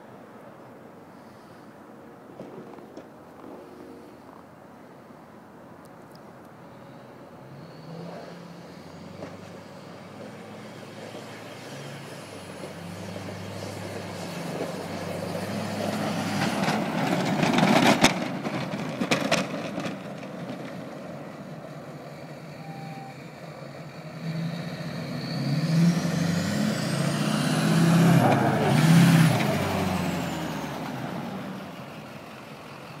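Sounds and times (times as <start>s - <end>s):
high whistle: 22.6s - 23.3s.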